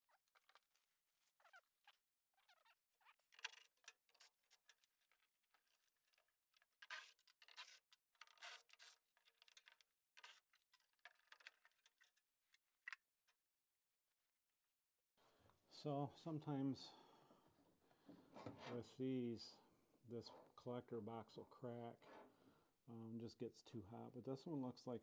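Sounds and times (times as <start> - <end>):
faint clicks and scrapes: 0.1 - 13.4, 17.8 - 19.0, 22.0 - 22.5.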